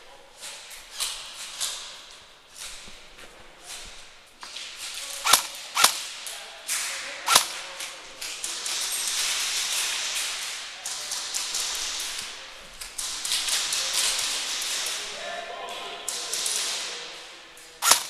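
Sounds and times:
rustling: 0.0 - 6.3, 17.6 - 18.0
airsoft gun shots: 5.2 - 6.0, 7.3 - 7.6.

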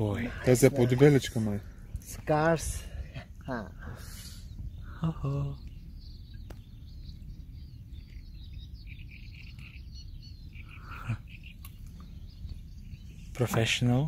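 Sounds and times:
small birds chirping: 0.0 - 14.0
steady low rumble: 0.0 - 14.0.

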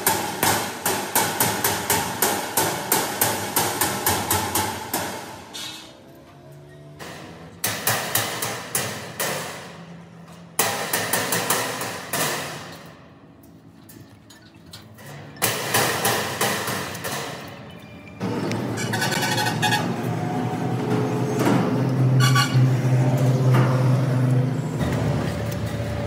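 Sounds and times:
hammer blows on sheet metal: 0.0 - 5.8, 7.0 - 10.0, 10.6 - 13.0, 15.4 - 17.5.

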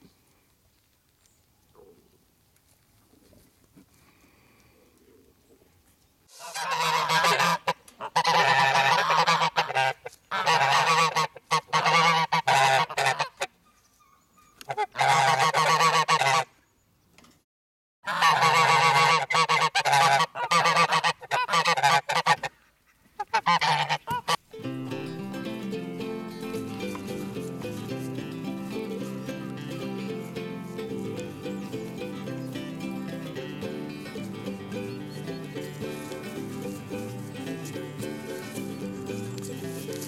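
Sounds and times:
geese honking: 6.3 - 13.5, 14.7 - 16.5, 18.1 - 22.5, 23.2 - 40.0.

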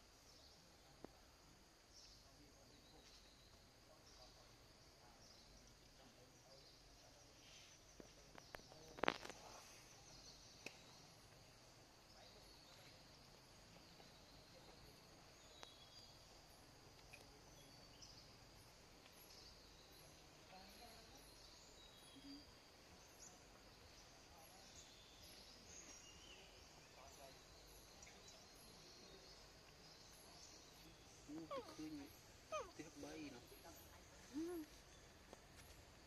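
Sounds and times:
bird chirps: 17.0 - 35.2.

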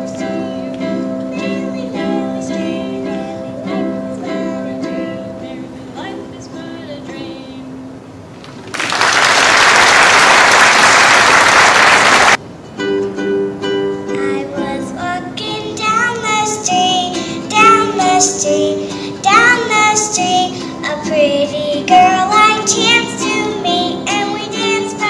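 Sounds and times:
girl singing: 0.0 - 7.8, 14.0 - 25.0
ukulele strumming chords: 0.0 - 7.9, 12.4 - 25.0
audience applause: 8.4 - 12.4.

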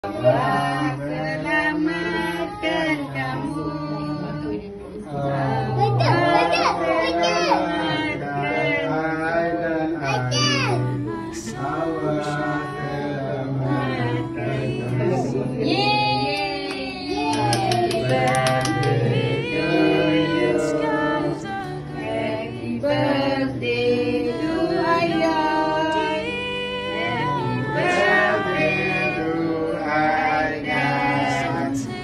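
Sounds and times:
group singing a birthday song: 0.0 - 32.0
hand claps: 16.3 - 19.1.

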